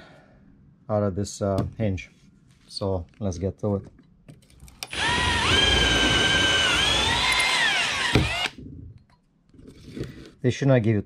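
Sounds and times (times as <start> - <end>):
electric drill whining: 4.9 - 8.6.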